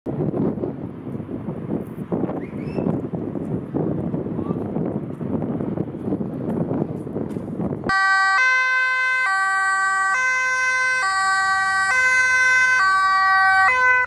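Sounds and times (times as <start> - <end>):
two-tone ambulance siren: 7.9 - 14.0.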